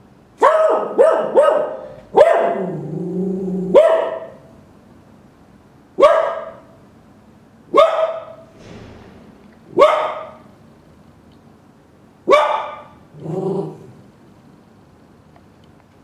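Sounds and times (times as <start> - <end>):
dog barking: 0.4 - 2.9, 3.6 - 4.5, 6.0 - 6.8, 7.7 - 8.5, 9.7 - 10.5, 12.3 - 13.0
dog growling: 2.5 - 3.8, 13.1 - 14.1.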